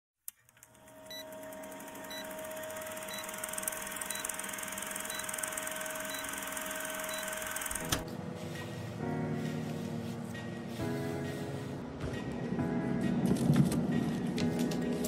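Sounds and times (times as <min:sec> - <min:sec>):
film projector clattering: 0:00.6 - 0:08.0.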